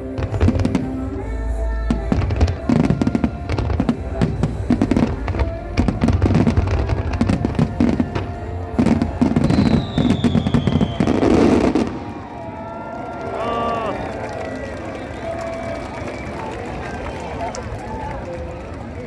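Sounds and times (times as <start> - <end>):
firework bangs and crackling: 0.0 - 1.3, 1.9 - 14.4
falling firework whistle: 8.9 - 12.4.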